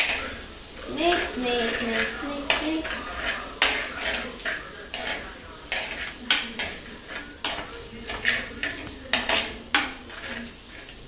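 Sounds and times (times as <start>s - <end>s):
onions sizzling in oil: 0.0s - 11.0s
spoon scraping frying pan: 0.0s - 11.0s.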